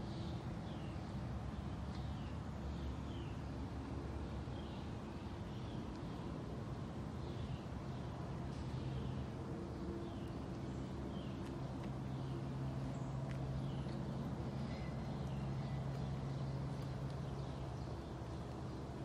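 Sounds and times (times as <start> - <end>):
steady low hum: 0.0 - 19.0
bird chirping: 7.2 - 19.0.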